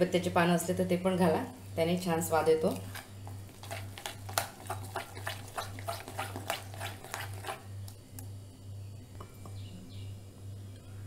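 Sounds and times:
wet squelching batter mixing: 2.6 - 8.0.

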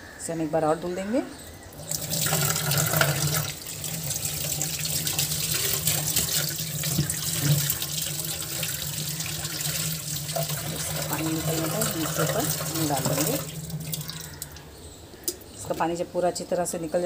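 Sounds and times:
tap water splashing on fish: 4.6 - 8.7.

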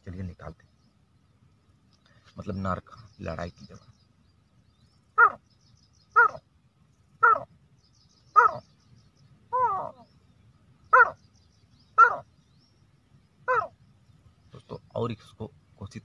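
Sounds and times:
man imitating bird calls: 5.2 - 5.4, 6.1 - 6.5, 7.2 - 7.5, 8.3 - 8.7, 9.5 - 10.2, 10.9 - 11.3, 12.0 - 12.3, 13.4 - 13.8.

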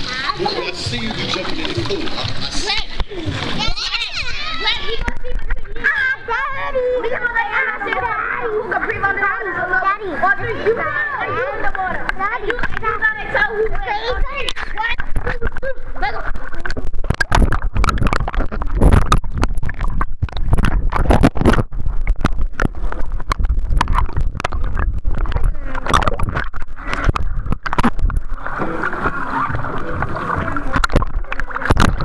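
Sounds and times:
water sloshing and gurgling: 0.0 - 32.0
low rumble: 16.4 - 32.0.

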